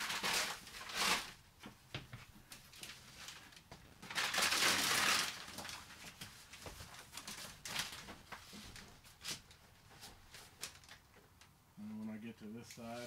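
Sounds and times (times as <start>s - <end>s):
foil and paper crinkling: 0.0s - 1.4s, 2.6s - 11.0s.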